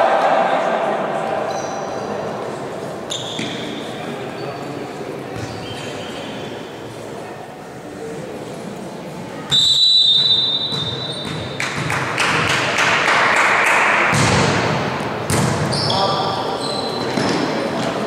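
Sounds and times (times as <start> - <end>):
voices shouting in hall: 0.0 - 2.1
referee's whistle blast: 9.5 - 11.2
volleyball being hit: 14.1 - 15.7.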